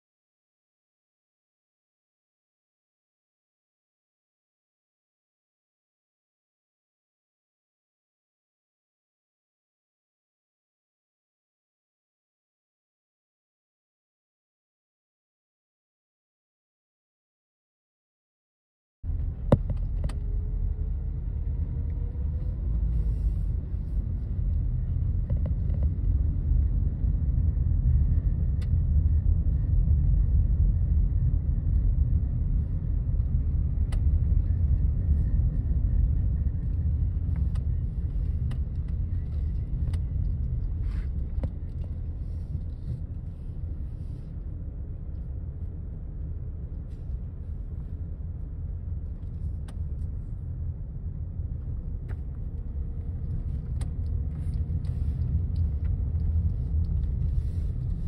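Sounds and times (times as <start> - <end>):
car driving slowly: 19.1 - 58.0.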